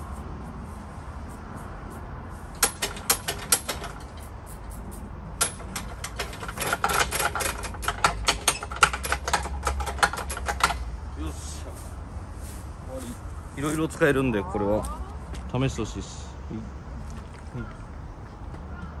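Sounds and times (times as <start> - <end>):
spray bottle squirting: 4.0 - 5.1.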